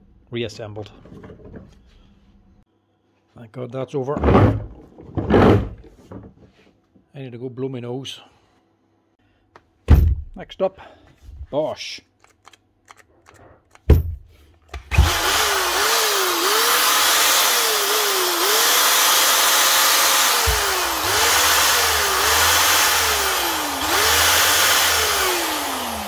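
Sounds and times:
drill motor running: 14.8 - 26.0.

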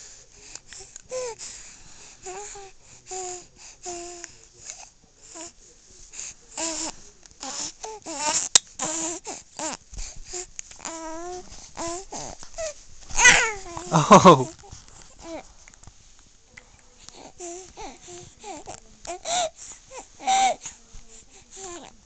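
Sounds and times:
infant fussing: 5.2 - 15.5, 17.0 - 22.0.

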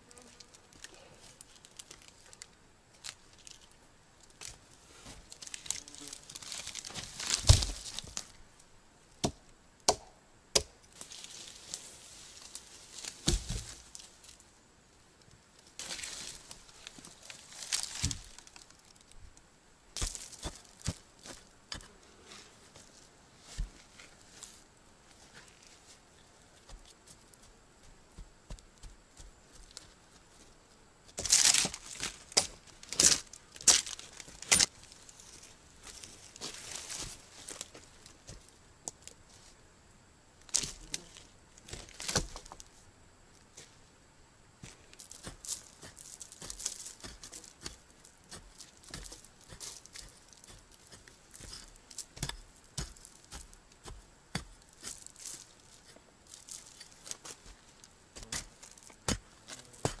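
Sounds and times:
log rustling and scraping: 0.2 - 8.4, 10.9 - 14.5, 15.6 - 19.2, 20.0 - 27.5, 28.2 - 39.6, 40.4 - 42.9, 44.6 - 60.0
digging tool striking soil: 9.2 - 11.1, 13.0 - 13.8, 20.0 - 21.9, 41.7 - 42.6, 44.6 - 55.4, 58.2 - 60.0.

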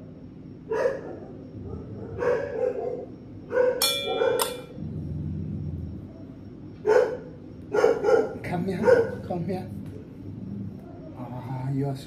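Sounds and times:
puppies barking and yipping: 0.7 - 4.6, 6.8 - 9.4.

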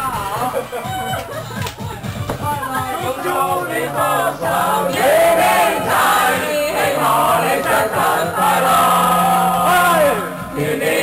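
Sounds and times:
music: 0.0 - 11.0
group singing and shouting: 2.6 - 11.0.

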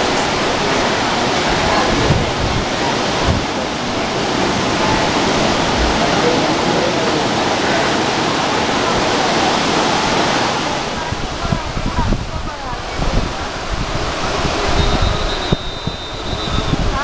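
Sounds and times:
wind bumps on microphone: 0.0 - 6.6, 10.7 - 17.0
people talking faintly: 0.0 - 17.0
sea surf rushing: 0.0 - 17.0.

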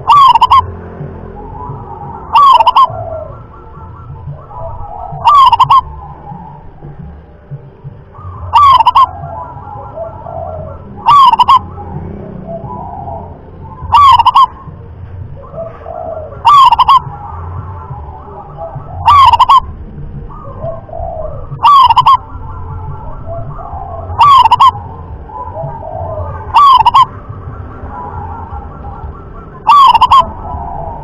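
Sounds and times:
dove cooing: 0.0 - 31.0.

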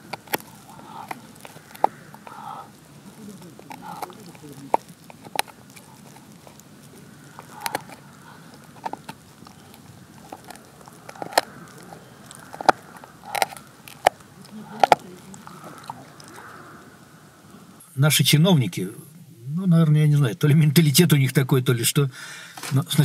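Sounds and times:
dog chewing with crunches: 0.0 - 17.6.

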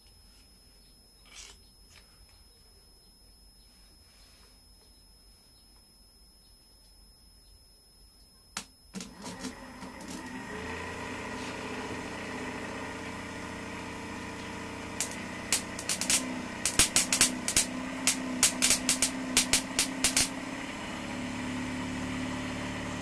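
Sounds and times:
generator whirring hum: 0.0 - 23.0
motor clicking on: 9.0 - 20.6
sharp electrical snaps: 15.0 - 20.3.

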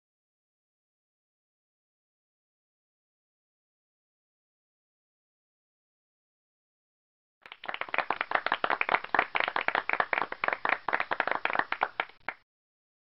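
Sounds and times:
canned applause: 7.4 - 12.4.

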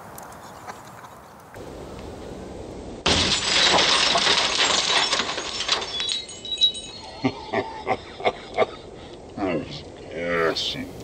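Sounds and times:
car window glass shattering: 3.1 - 6.7
falling glass pieces clinking: 3.1 - 7.6.

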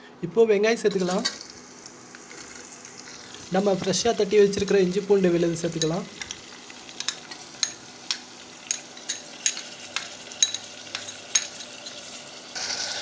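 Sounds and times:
onions sizzling in oil: 1.0 - 13.0
spoon clinking on glass bowl: 8.7 - 11.8.

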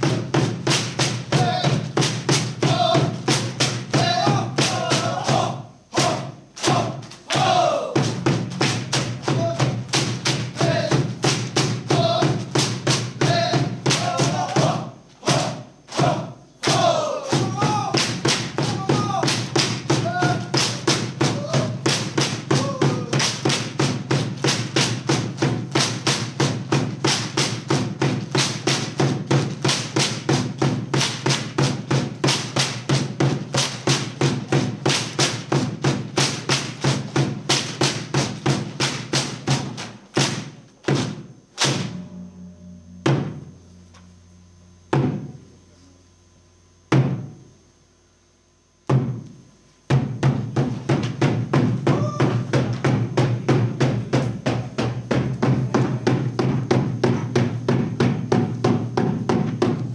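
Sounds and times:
drum beat: 0.0 - 45.6, 46.8 - 47.5, 48.9 - 59.9
bamboo poles striking: 13.8 - 23.7, 36.2 - 45.4.

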